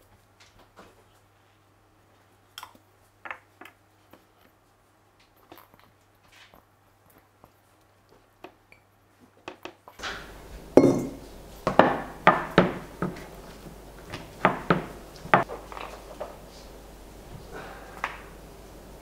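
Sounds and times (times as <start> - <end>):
kitchen utensils knocking on worktop: 10.8 - 13.2, 14.4 - 15.5.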